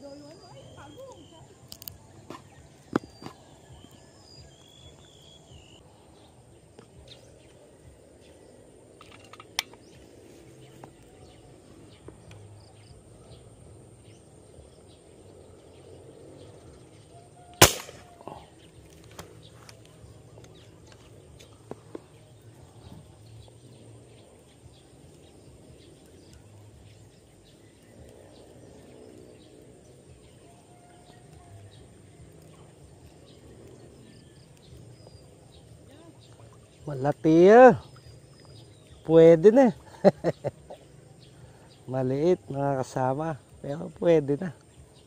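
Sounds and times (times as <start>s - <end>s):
air rifle shot: 17.6s - 18.4s.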